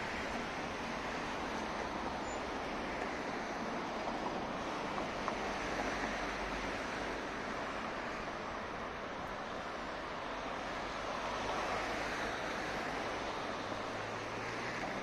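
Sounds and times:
city road traffic: 0.0s - 15.0s.

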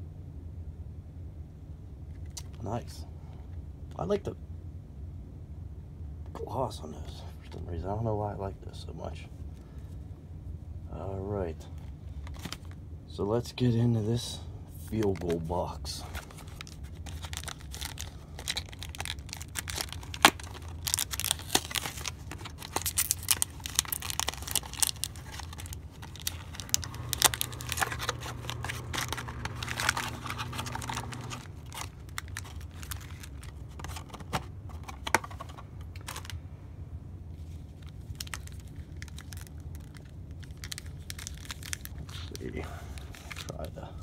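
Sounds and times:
packaging crinkling and crackling: 12.1s - 12.8s, 14.9s - 36.4s, 37.4s - 43.7s.

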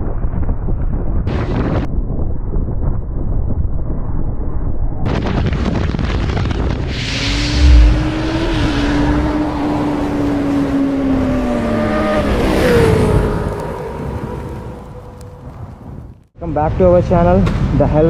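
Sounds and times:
heavy boom: 7.1s - 8.7s
racing engine sound effect: 7.3s - 8.9s.

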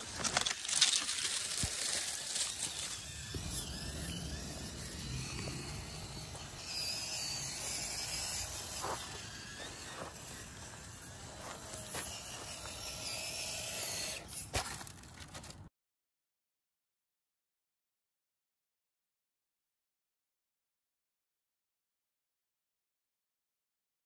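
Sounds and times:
small electric motor whining: 0.0s - 15.5s.

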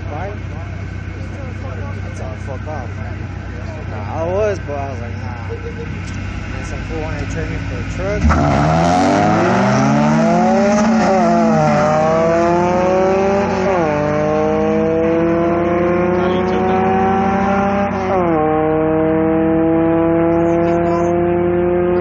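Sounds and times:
low steady engine note: 0.0s - 8.3s
car engine accelerating hard: 0.0s - 22.0s.

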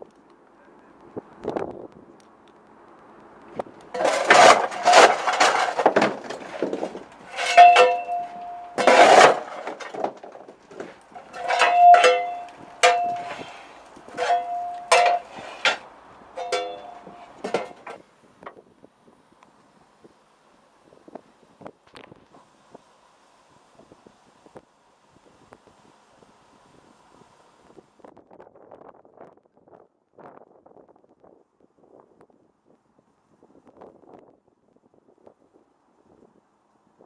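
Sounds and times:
shovel scraping into coal: 3.9s - 10.1s, 10.7s - 15.8s
shovel clanging against metal: 7.3s - 9.9s, 11.2s - 15.8s, 16.4s - 17.8s.

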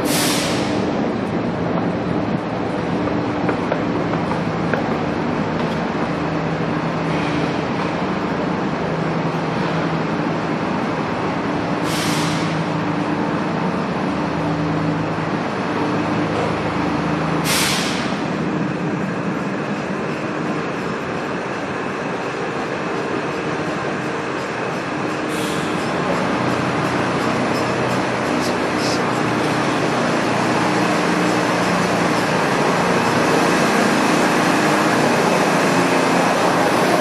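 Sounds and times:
subway train drone: 0.0s - 37.0s
short hisses: 0.1s - 0.7s, 11.8s - 12.6s, 17.4s - 18.1s.

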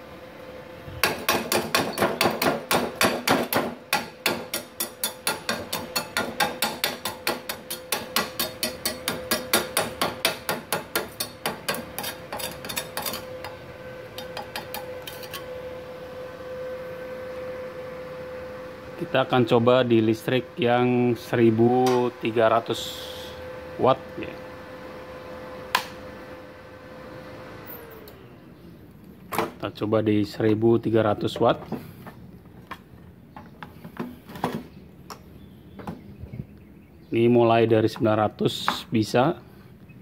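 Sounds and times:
steady hum: 0.0s - 27.1s
chipping hammer striking metal: 1.0s - 13.3s.

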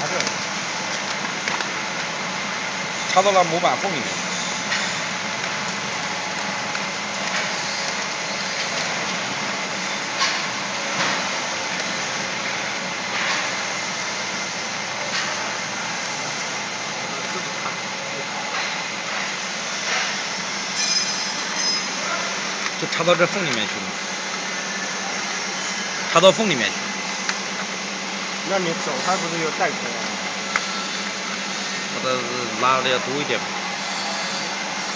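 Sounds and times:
factory machinery hum: 0.0s - 34.9s.

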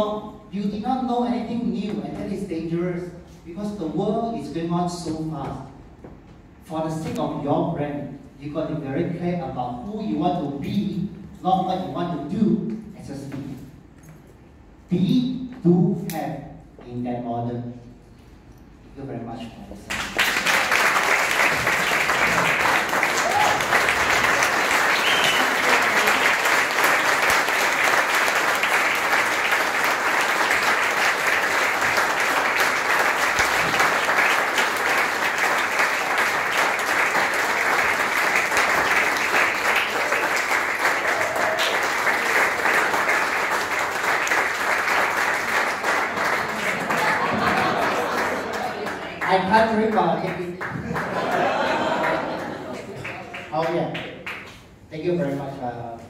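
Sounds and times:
audience applauding: 19.9s - 49.5s, 50.3s - 54.5s.

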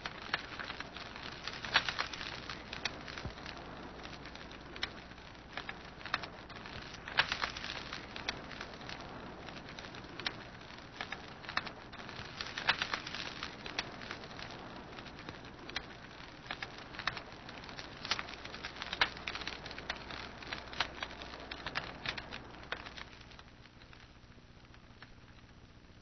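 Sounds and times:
crackling clicks and pops: 0.0s - 26.0s
steady hiss: 0.0s - 26.0s.

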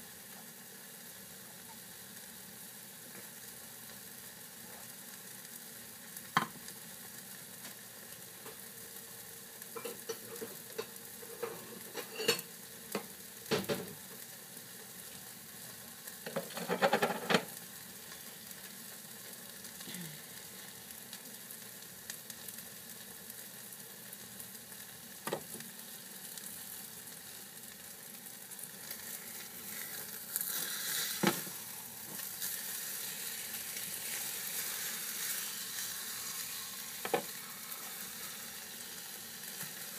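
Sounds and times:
eggs sizzling in a frying pan: 0.0s - 39.9s
spatula scraping a pan: 9.8s - 12.5s, 16.3s - 17.5s, 28.9s - 33.0s.

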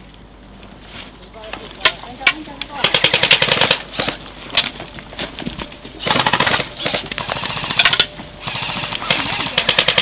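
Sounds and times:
airsoft rifles firing rapid clicks: 2.8s - 4.1s, 6.0s - 10.0s.

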